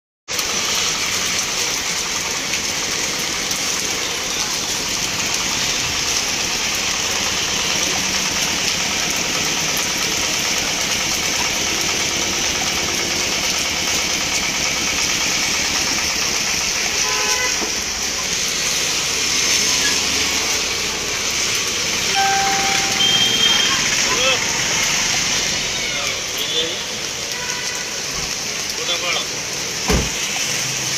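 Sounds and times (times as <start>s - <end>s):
heavy rain on wet street: 0.3s - 30.9s
vehicle horn toot: 17.0s - 17.6s, 22.2s - 23.9s.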